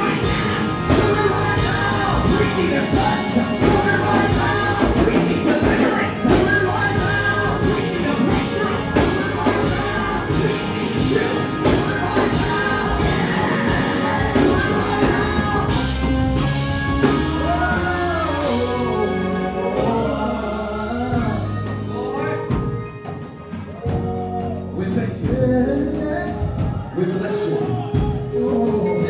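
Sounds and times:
man singing into a microphone: 0.0 - 15.6, 17.4 - 22.6, 24.3 - 29.0
band playing worship music: 0.0 - 29.0.

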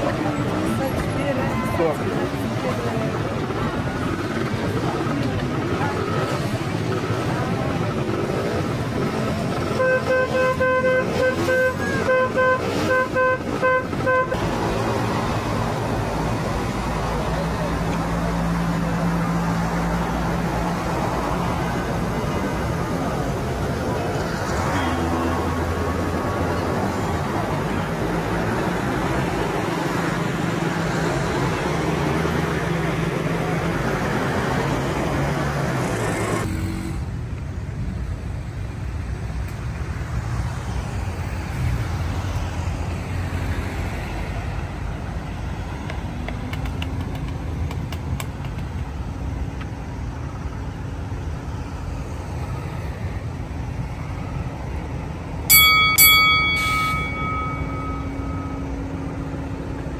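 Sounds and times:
road noise: 0.0 - 59.9
vehicle engines running: 0.0 - 59.9
sharp ringing strokes: 55.5 - 59.2.

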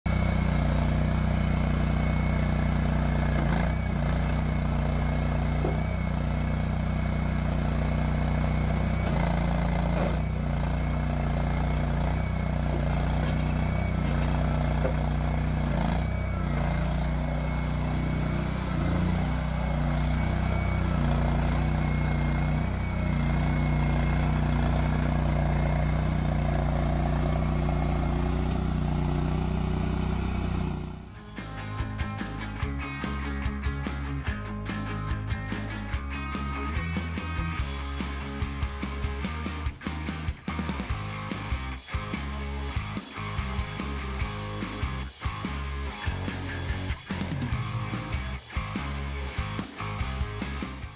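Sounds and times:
loader engine running: 0.0 - 50.9
thin high whine: 0.1 - 32.5.

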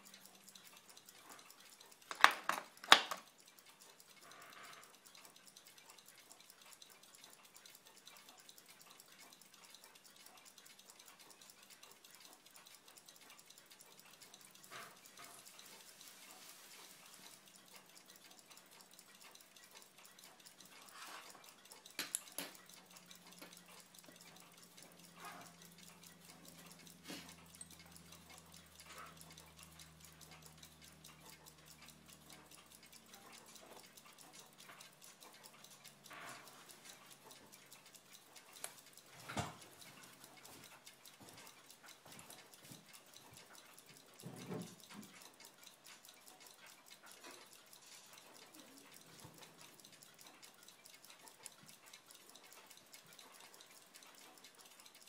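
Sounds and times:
tweezers clicking: 17.3 - 46.5.

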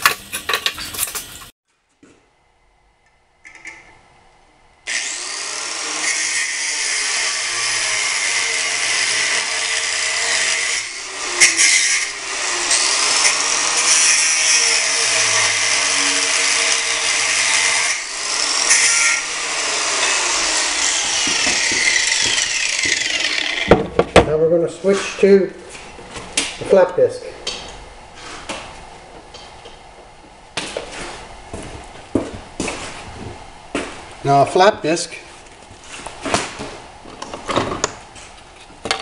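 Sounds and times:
angle grinder cutting steel: 4.9 - 23.8.

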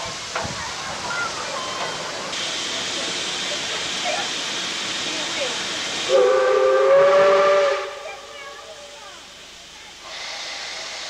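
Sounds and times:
steam hissing: 0.0 - 11.0
steam locomotive whistle: 6.1 - 8.6.

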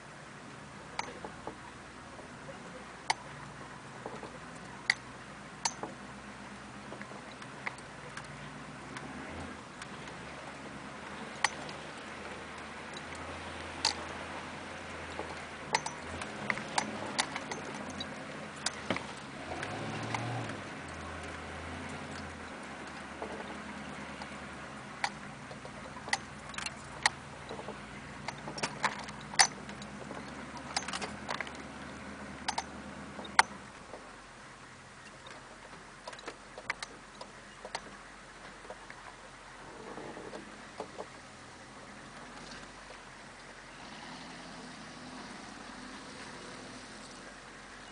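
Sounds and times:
sharp clicks and knocks: 1.0 - 1.6, 4.0 - 5.0, 5.6 - 6.0, 11.1 - 11.8, 12.6 - 14.2, 15.1 - 24.4, 25.0 - 31.7, 32.4 - 34.1, 35.0 - 38.9.

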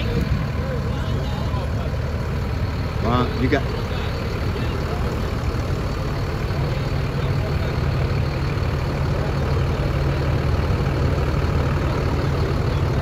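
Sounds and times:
truck diesel engine rumbling: 0.0 - 13.0.

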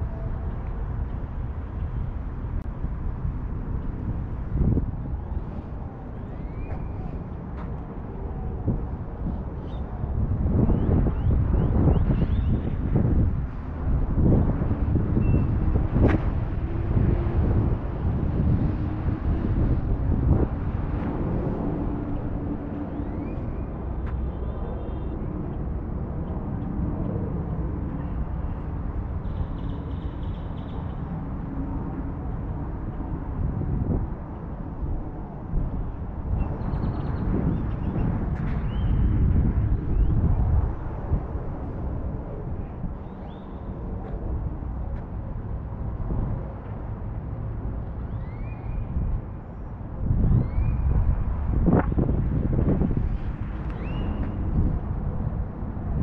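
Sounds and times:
wind buffeting microphone: 0.0 - 56.0
faint rising whistle: 6.2 - 7.2.

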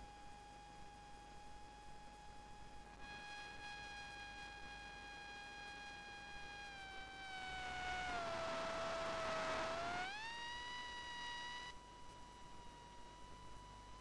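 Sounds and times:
model plane electric motor whining: 6.5 - 11.7.

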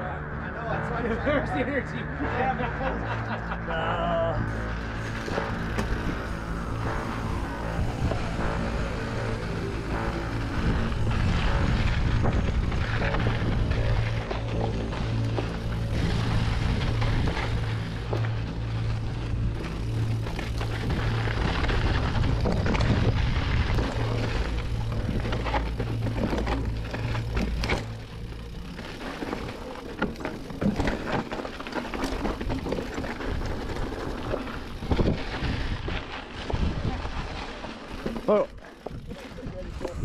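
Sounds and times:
steady low hum: 0.0 - 36.1
bike tyre noise on dirt: 2.3 - 40.0
bike rattling over rocks: 4.5 - 40.0
wind on microphone: 5.0 - 14.4, 20.8 - 25.6, 34.7 - 37.4.

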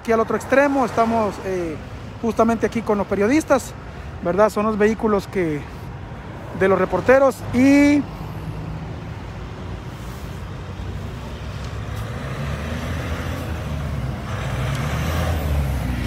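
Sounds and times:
street noise: 0.0 - 16.0.

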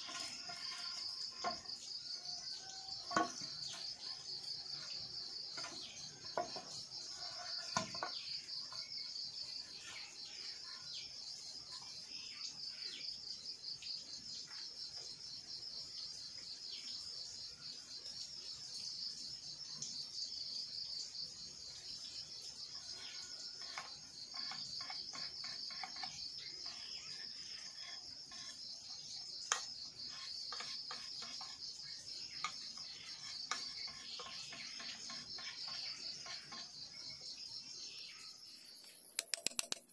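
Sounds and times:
insect chorus trilling: 0.0 - 39.8
bamboo poles clicking: 39.1 - 39.9.

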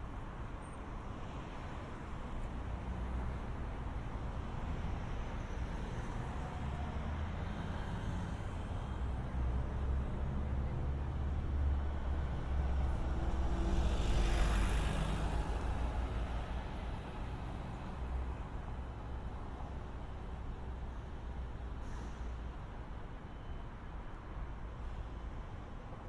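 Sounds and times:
low rumble of traffic engines: 0.0 - 26.0
truck passing by: 4.5 - 18.2.

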